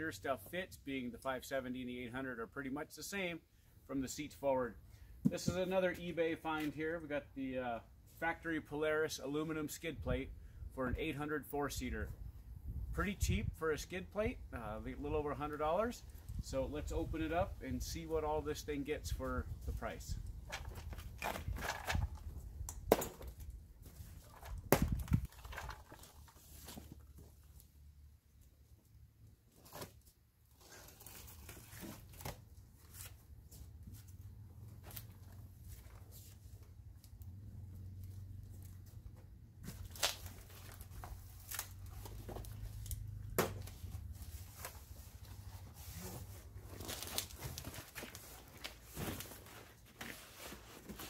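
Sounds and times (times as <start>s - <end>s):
cardboard scraping and rustling: 39.6s - 51.0s
tape ripping: 39.7s - 43.7s.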